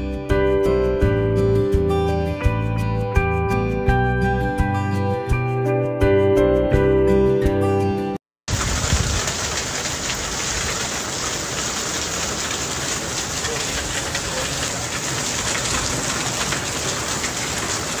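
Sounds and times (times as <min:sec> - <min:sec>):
wind rumbling on microphone: 0:08.5 - 0:10.8
heavy rain pouring: 0:08.5 - 0:18.0.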